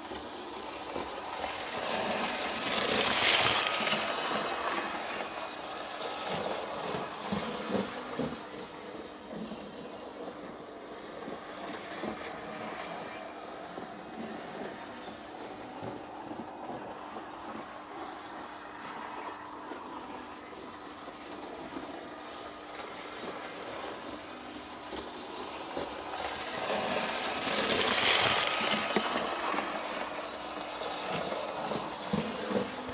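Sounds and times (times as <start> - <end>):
faint constant hum: 0.0 - 32.9
model train running on track: 0.0 - 32.9.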